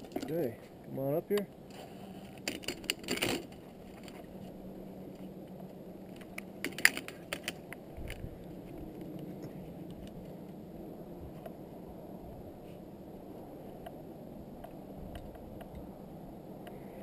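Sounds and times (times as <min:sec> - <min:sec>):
faint steady background noise: 0:00.0 - 0:17.0
carabiners clinking on steel cable: 0:02.2 - 0:04.2, 0:06.6 - 0:08.2.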